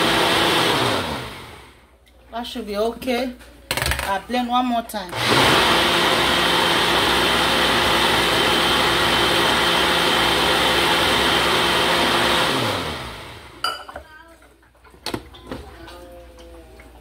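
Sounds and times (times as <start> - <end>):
blender motor running: 0.0 - 1.8, 5.2 - 13.6.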